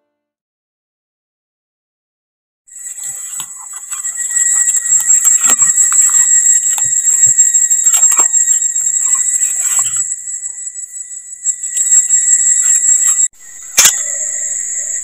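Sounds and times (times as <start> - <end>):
dry leaves and twigs crackling: 2.7 - 14.3
high shrill insect chorus: 2.7 - 15.0
lower insect tone: 2.7 - 15.0.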